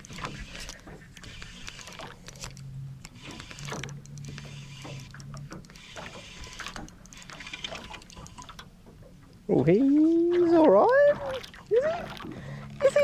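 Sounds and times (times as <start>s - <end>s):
fishing reel whirring: 0.0s - 8.6s
small clicks: 0.6s - 8.7s.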